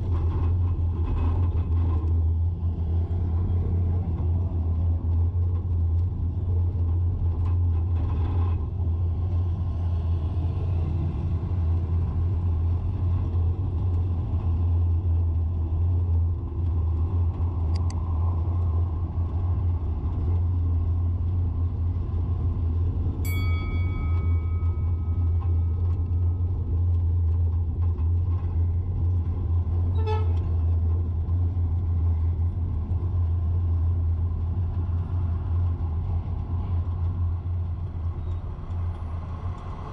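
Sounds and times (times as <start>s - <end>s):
vehicle driving in traffic: 0.0s - 39.9s
car horn: 30.0s - 30.4s.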